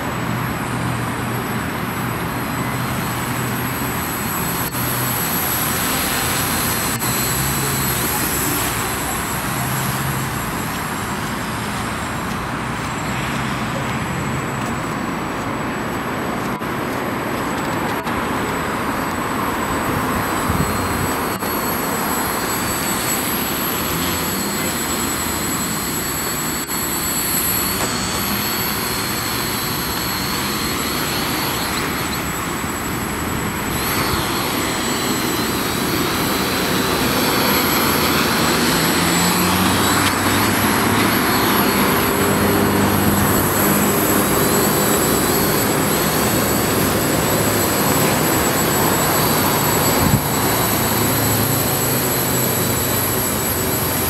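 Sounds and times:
quadcopter motors whining: 0:00.0 - 0:54.0
road traffic noise: 0:00.0 - 0:54.0.

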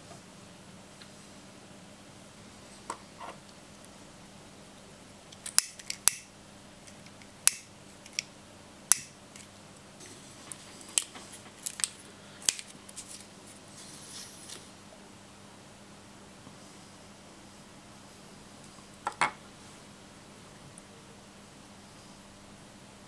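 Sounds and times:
faint handling rustle: 0:10.0 - 0:14.8.

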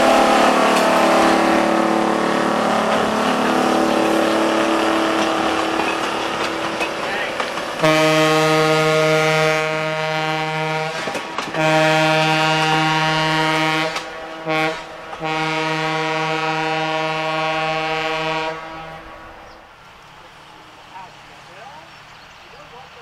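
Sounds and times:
locomotive air horn blasts: 0:00.0 - 0:06.0, 0:07.8 - 0:19.5.

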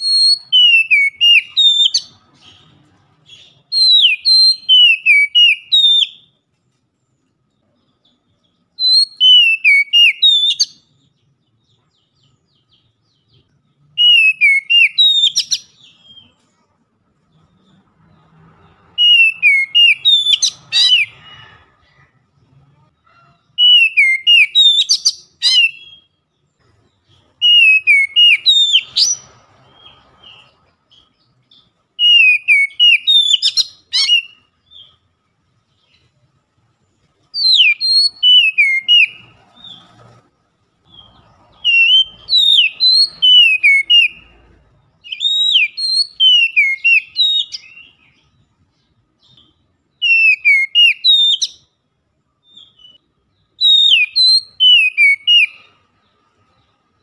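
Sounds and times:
bird singing whistled phrases: 0:00.0 - 0:02.7, 0:03.3 - 0:06.4, 0:08.8 - 0:10.9, 0:14.0 - 0:16.4, 0:19.0 - 0:21.3, 0:23.6 - 0:26.2, 0:27.4 - 0:31.0, 0:32.0 - 0:34.9, 0:37.4 - 0:39.8, 0:40.9 - 0:44.4, 0:45.0 - 0:48.3, 0:49.2 - 0:51.7, 0:53.6 - 0:55.8.

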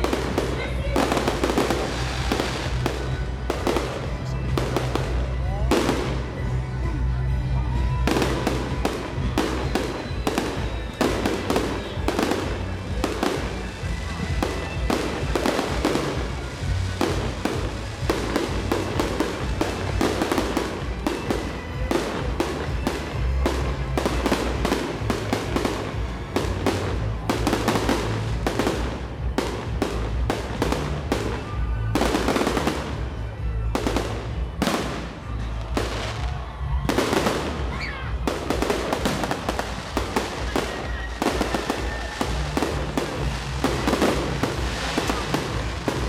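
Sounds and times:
crackling firework stars: 0:00.0 - 0:46.0.

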